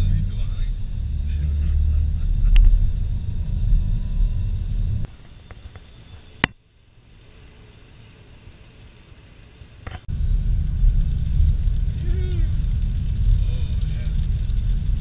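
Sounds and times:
car engine and road rumble: 0:00.0 - 0:15.0
hiss: 0:05.1 - 0:09.8.

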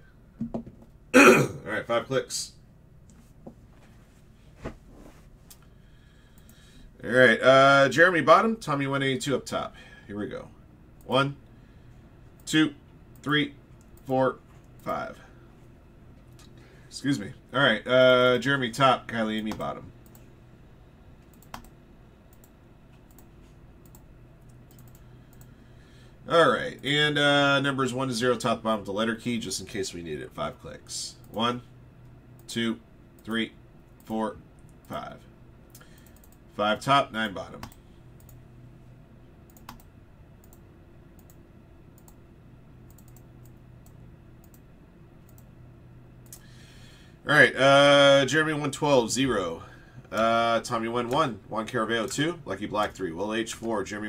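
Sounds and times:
low steady hum: 0:00.0 - 0:54.0
computer mouse and keyboard clicks: 0:21.2 - 0:25.5.

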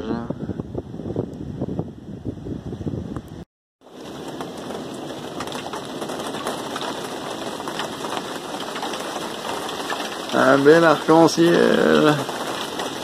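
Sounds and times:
rain falling on boat: 0:03.8 - 0:13.0.

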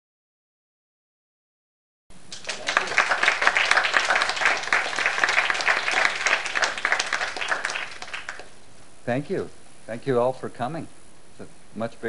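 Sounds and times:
audience applauding: 0:02.3 - 0:08.6.

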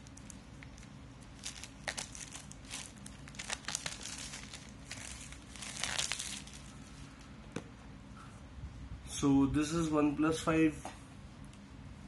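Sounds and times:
plastic shrink-wrap crinkling: 0:00.0 - 0:06.8.

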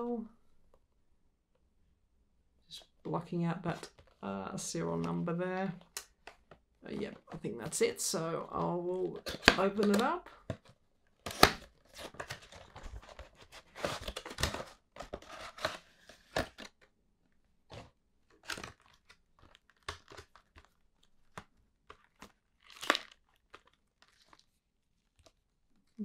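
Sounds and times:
plastic tray crackling: 0:17.7 - 0:24.5.

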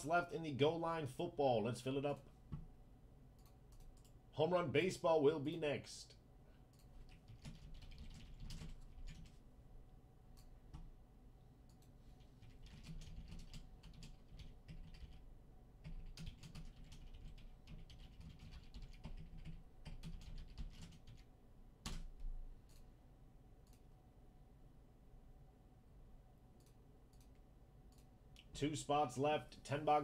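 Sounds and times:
typing on computer keyboard: 0:06.7 - 0:09.4, 0:11.7 - 0:15.2, 0:15.8 - 0:22.8.

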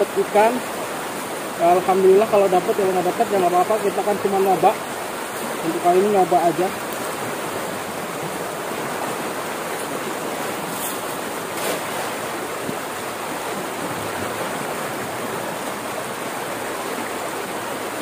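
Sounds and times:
flood water rushing: 0:00.0 - 0:18.0
cast net hitting water: 0:10.7 - 0:12.8.

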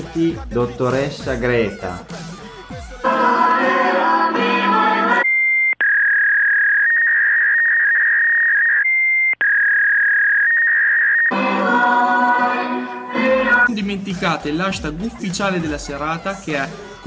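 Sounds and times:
music: 0:00.0 - 0:05.2, 0:11.3 - 0:17.0
high pure tone: 0:03.0 - 0:05.2, 0:11.3 - 0:13.8.

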